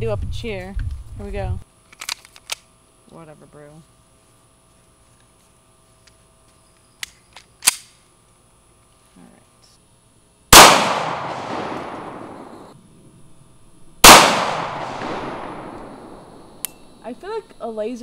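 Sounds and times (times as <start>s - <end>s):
pistol shots with echo: 10.5s - 12.7s, 14.0s - 16.4s.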